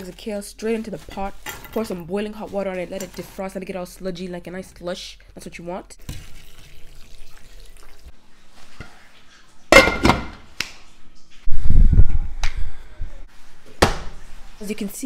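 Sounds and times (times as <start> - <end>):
hot water pouring into pot: 6.0 - 8.1
metal lid clanking: 9.7 - 10.4.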